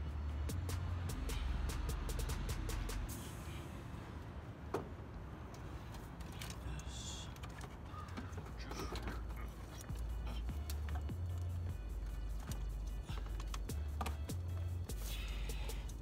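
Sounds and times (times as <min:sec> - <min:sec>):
music with bass beat: 0:00.0 - 0:03.2, 0:09.2 - 0:16.0
metal clicks and creaks: 0:04.8 - 0:14.8.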